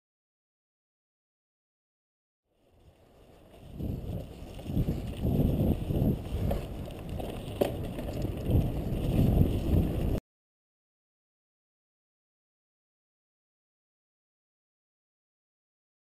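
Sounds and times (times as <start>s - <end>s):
bicycle rumbling on bumpy trail: 2.5s - 10.2s
wind buffeting microphone: 3.3s - 10.2s.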